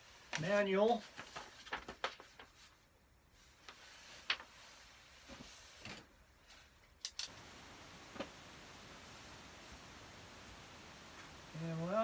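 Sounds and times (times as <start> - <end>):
soft clicks and paper rustles: 0.2 - 8.5.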